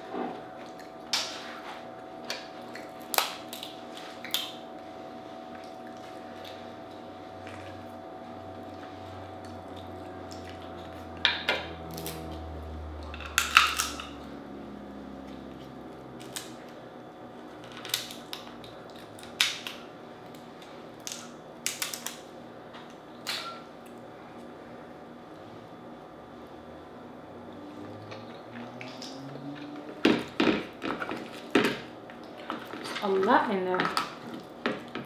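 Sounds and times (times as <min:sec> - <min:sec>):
steady background hum: 0:00.0 - 0:35.0
crab shell cracking: 0:02.8 - 0:04.6, 0:13.1 - 0:14.2, 0:16.2 - 0:16.6, 0:17.6 - 0:20.4, 0:21.0 - 0:22.3.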